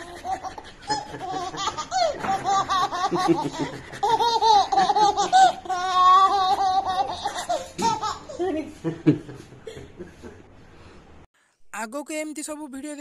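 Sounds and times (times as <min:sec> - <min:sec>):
baby laughing: 0:00.0 - 0:08.6.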